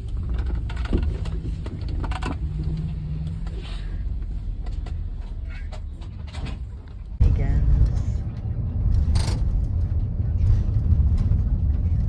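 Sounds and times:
light rattles and clicks: 0.0s - 7.2s
bus engine and road rumble: 0.0s - 12.0s.

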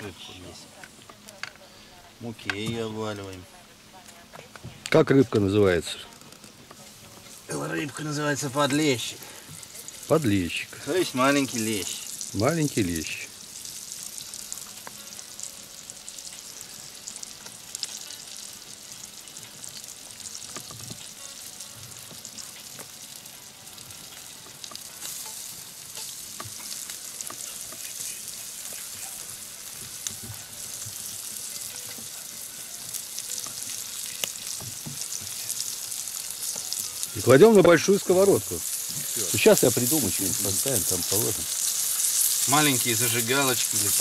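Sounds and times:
fish sizzling in oil: 0.0s - 44.0s
oil popping: 33.0s - 44.0s.

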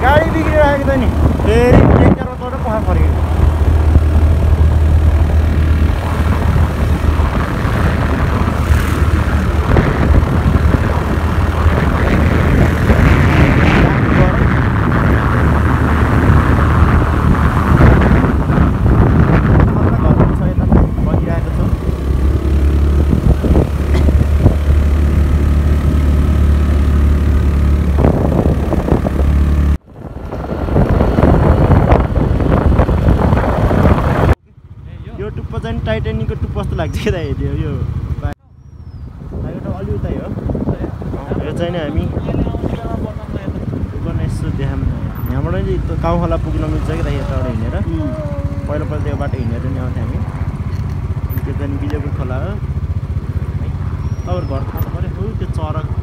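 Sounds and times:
motorbike engine humming: 0.0s - 56.0s
road and wind noise: 0.0s - 56.0s.

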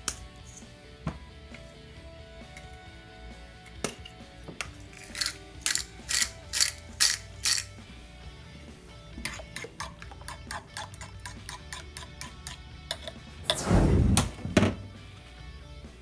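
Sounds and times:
short rushing noise: 13.4s - 14.9s.

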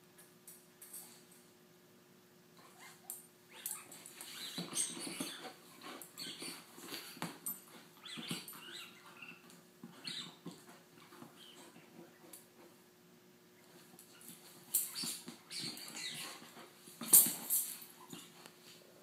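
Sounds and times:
dog chewing on toy: 4.2s - 12.8s.

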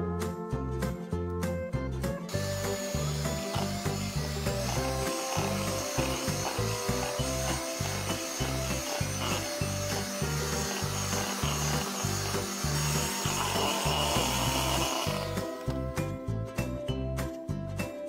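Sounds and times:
electric hand mixer running: 2.3s - 16.2s.

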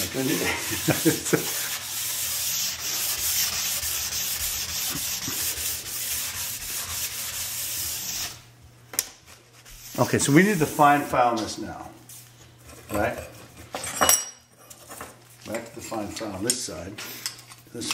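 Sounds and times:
hand file rasping on ski edge: 0.1s - 8.3s.

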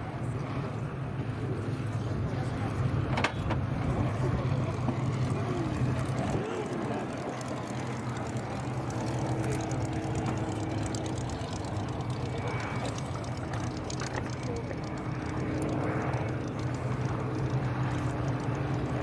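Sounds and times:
piston aircraft engines droning: 0.0s - 19.0s.

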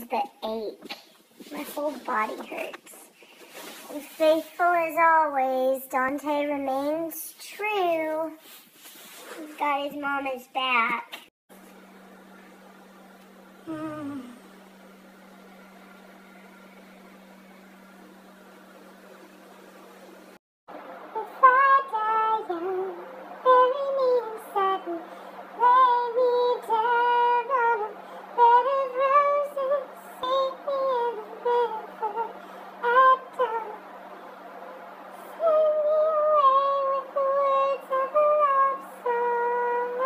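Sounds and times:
steady low hum: 11.5s - 40.0s
woman singing unaccompanied: 21.1s - 33.9s, 35.2s - 40.0s.

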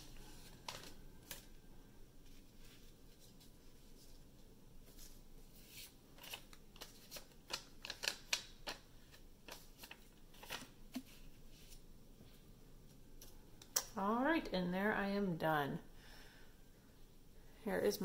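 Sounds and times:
paper rustling and crinkling: 0.0s - 1.6s, 2.2s - 11.8s.

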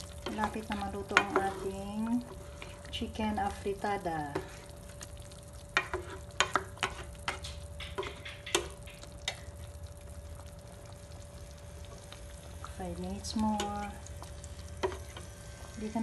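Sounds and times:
food simmering in sauce: 0.0s - 16.0s
low hum with faint whine: 0.0s - 16.0s
sharp pops and clicks: 5.0s - 9.6s.

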